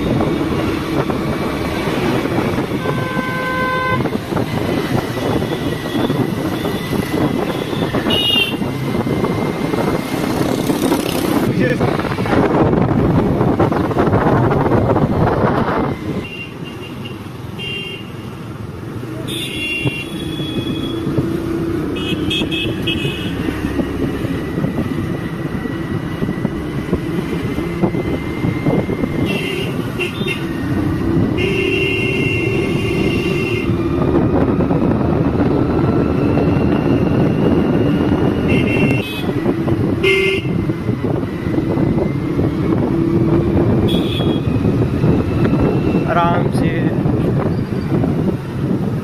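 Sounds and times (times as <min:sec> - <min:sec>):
vehicle horns honking: 0:02.4 - 0:04.2, 0:05.2 - 0:08.7, 0:16.2 - 0:18.3, 0:19.2 - 0:21.0, 0:21.9 - 0:23.4, 0:29.2 - 0:30.6, 0:31.2 - 0:33.8, 0:38.3 - 0:40.7, 0:43.8 - 0:44.6.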